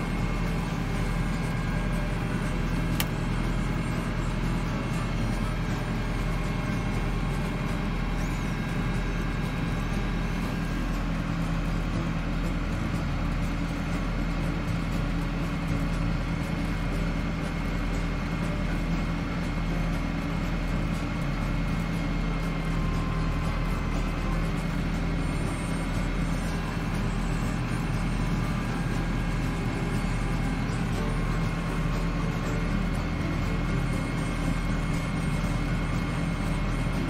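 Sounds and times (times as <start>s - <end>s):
tractor diesel engine running: 0.0s - 37.0s.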